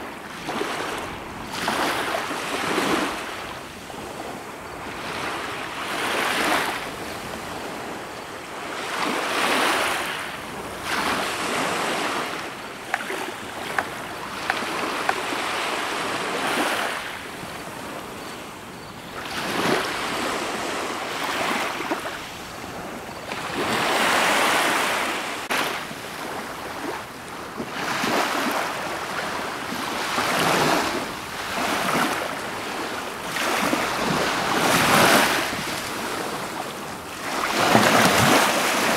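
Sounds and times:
water splashing around boat: 37.2 - 38.9.

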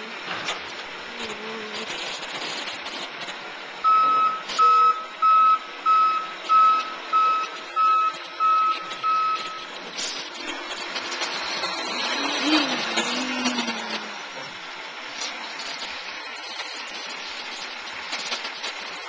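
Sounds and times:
truck engine running: 0.0 - 19.0
truck reverse alarm beeping: 3.8 - 12.2.

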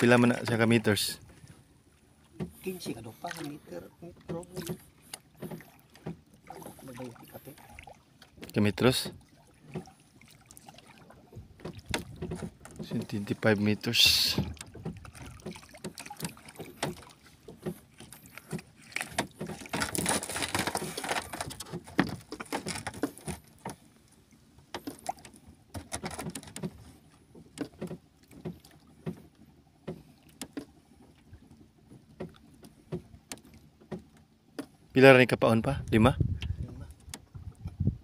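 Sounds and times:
water lapping against boat hull: 0.0 - 38.0
light knocks and clicks: 2.4 - 2.6, 4.1 - 6.2, 11.6 - 13.4, 24.7 - 30.7, 31.9 - 34.8.

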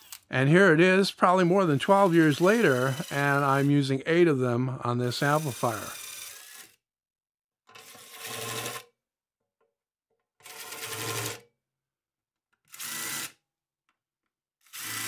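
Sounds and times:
drill boring through metal: 1.4 - 3.8, 5.0 - 6.8, 14.6 - 15.0.

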